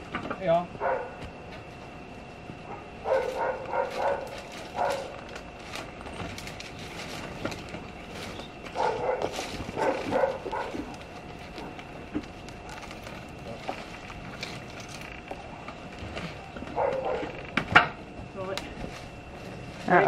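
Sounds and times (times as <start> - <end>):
dog barking: 0.8 - 1.2, 2.7 - 5.1, 8.8 - 10.9, 16.7 - 17.4.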